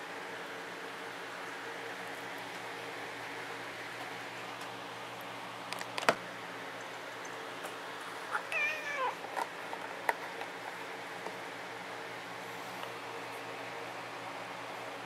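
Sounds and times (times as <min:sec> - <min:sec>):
cat meowing: 0:08.3 - 0:09.2.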